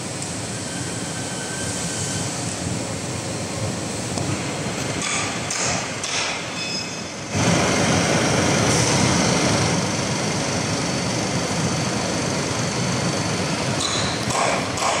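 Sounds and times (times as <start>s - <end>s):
fabric cutting machine running: 7.3s - 15.0s.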